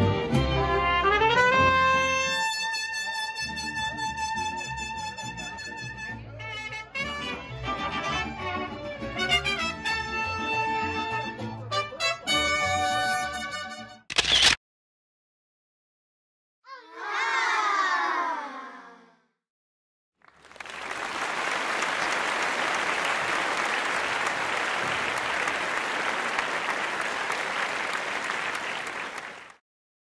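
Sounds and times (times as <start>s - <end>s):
crowd applauding: 20.2s - 29.6s.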